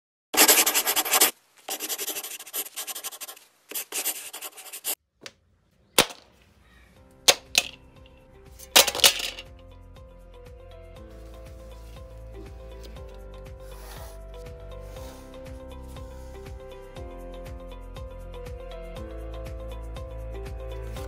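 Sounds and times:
quiet electronic music: 0:06.5 - 0:21.0.

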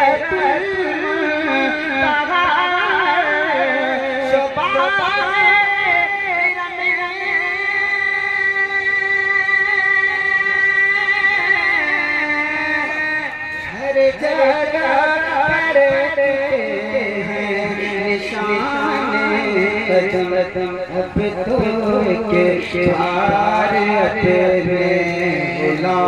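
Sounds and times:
man singing into a microphone: 0:00.0 - 0:26.0.

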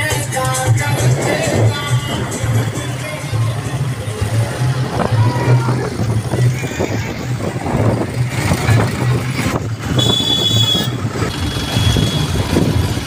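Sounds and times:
pulsing bass beat: 0:00.0 - 0:09.9
tractor engine noise: 0:00.0 - 0:13.0.

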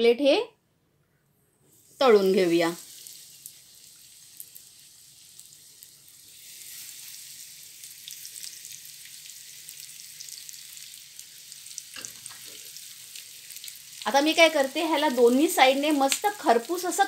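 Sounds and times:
fish sizzling in hot oil: 0:01.8 - 0:17.0
oil crackles: 0:02.2 - 0:17.0.

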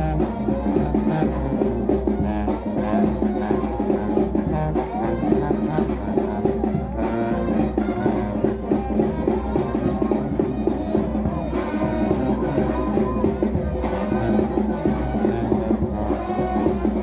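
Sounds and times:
drum beat: 0:00.0 - 0:17.0
horns playing: 0:00.0 - 0:17.0.

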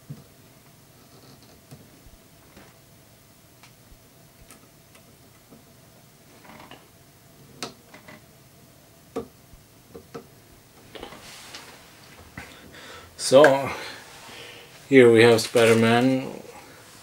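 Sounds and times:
light rustling: 0:10.8 - 0:12.6.

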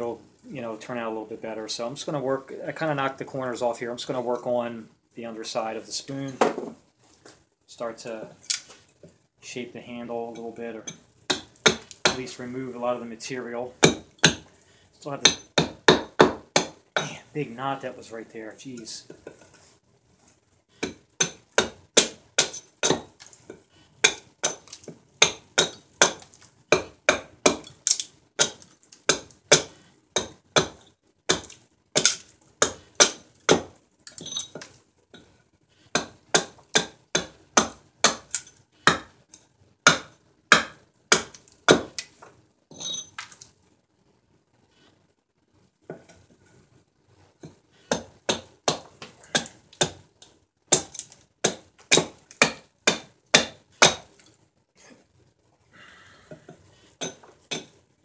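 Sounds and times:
axe chopping wood: 0:11.3 - 0:12.2, 0:13.8 - 0:14.5, 0:15.2 - 0:16.8, 0:20.8 - 0:23.3, 0:24.0 - 0:33.7, 0:35.9 - 0:39.1, 0:39.8 - 0:42.1, 0:47.9 - 0:50.0, 0:50.7 - 0:54.1.

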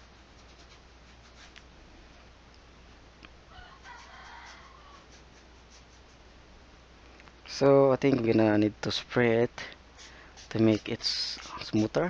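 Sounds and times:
brush strokes on canvas: 0:03.7 - 0:06.3, 0:09.9 - 0:12.0.

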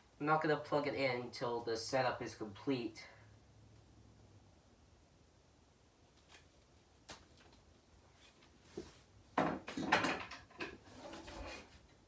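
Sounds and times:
clattering knocks on wooden floor: 0:09.4 - 0:10.8.

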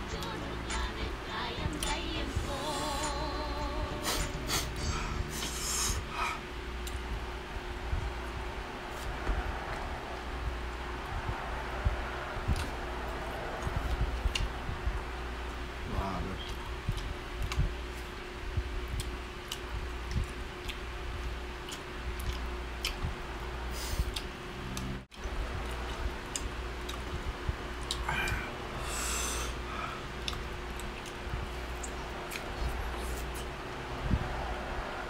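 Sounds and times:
electric fan hum: 0:00.0 - 0:35.0
person chewing fruit: 0:03.9 - 0:07.1, 0:12.5 - 0:12.7, 0:16.4 - 0:23.1, 0:23.7 - 0:33.5
short breathy noise: 0:04.0 - 0:06.5.

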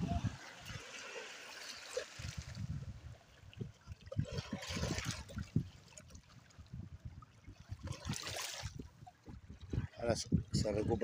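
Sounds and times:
river water lapping over rocks: 0:00.1 - 0:10.0.

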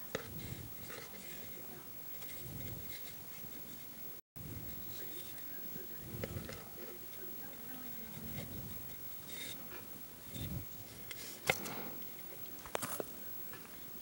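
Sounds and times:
strings rubbing and handling: 0:00.0 - 0:04.0, 0:04.6 - 0:13.9.

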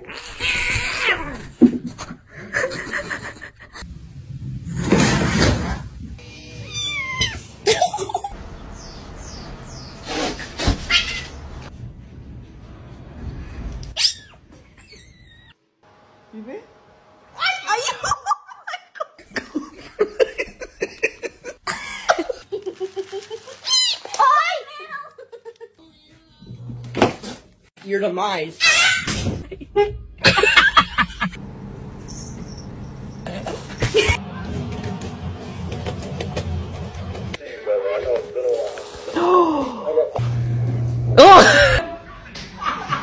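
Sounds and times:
person laughing: 0:01.8 - 0:03.8, 0:07.6 - 0:08.4, 0:17.9 - 0:23.6, 0:25.2 - 0:25.8, 0:29.4 - 0:31.4, 0:41.2 - 0:43.0
cat meowing: 0:06.3 - 0:07.4.

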